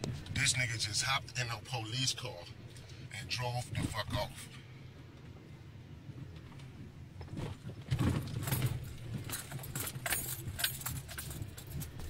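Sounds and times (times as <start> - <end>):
car hum: 0.0 - 12.0
jingling rattles and rustles: 7.3 - 12.0.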